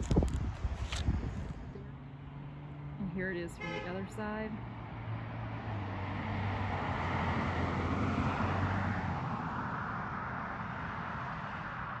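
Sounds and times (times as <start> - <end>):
vehicle engine passing: 4.5 - 12.0.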